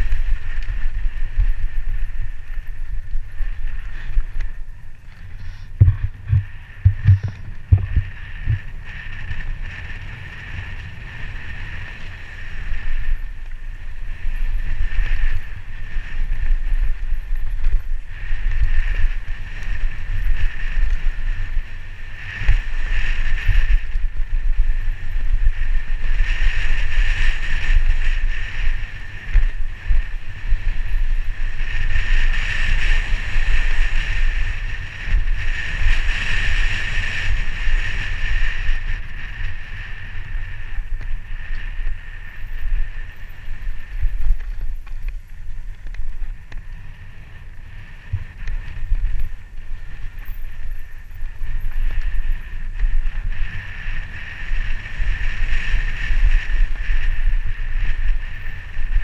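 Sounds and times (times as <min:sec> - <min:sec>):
steady high buzz: 0:00.0 - 0:16.8
wind buffeting microphone: 0:00.0 - 0:59.0.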